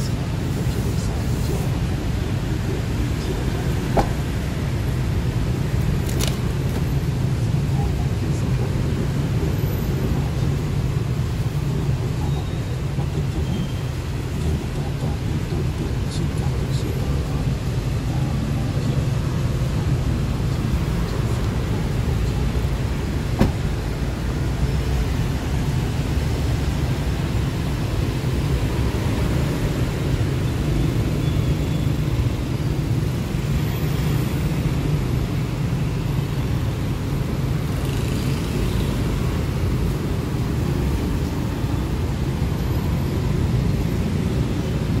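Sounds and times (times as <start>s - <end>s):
road traffic rumble: 0.0s - 45.0s
car door shutting: 3.8s - 4.4s, 23.1s - 23.8s.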